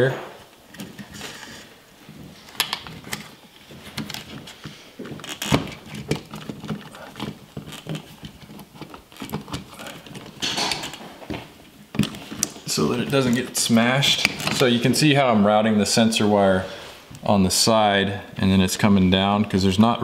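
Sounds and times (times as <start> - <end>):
hands rustling with wires: 0.4 - 15.1.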